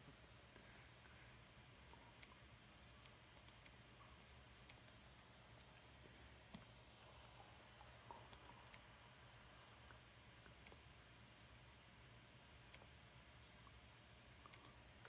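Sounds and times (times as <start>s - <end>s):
low room hum: 0.0s - 15.0s
stylus scratching tablet screen: 1.9s - 5.0s, 5.6s - 15.0s.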